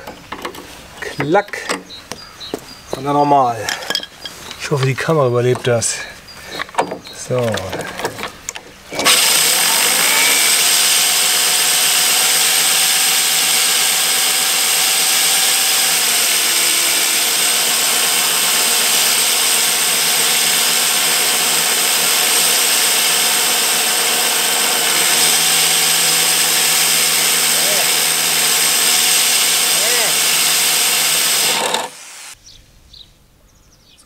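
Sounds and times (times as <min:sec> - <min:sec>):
electric drill spinning: 0:08.9 - 0:32.4
mower reel grinding hiss: 0:08.9 - 0:32.4.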